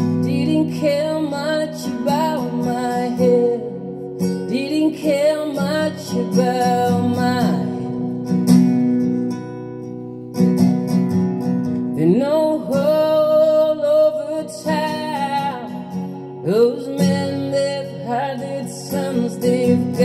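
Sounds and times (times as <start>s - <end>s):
person singing: 0.0s - 8.3s, 11.8s - 20.0s
acoustic guitar: 0.0s - 20.0s.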